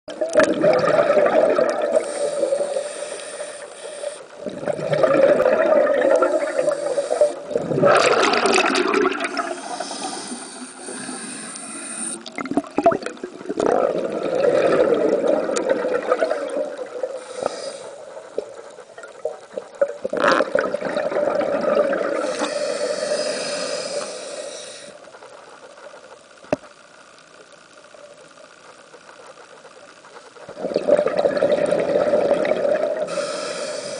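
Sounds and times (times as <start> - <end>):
exhaled bubbles: 0.1 - 3.6, 4.3 - 25.0, 30.4 - 33.9
regulator inhale hiss: 1.8 - 4.5, 6.2 - 7.6, 9.3 - 12.4, 16.3 - 18.7, 22.1 - 25.6, 33.0 - 33.9.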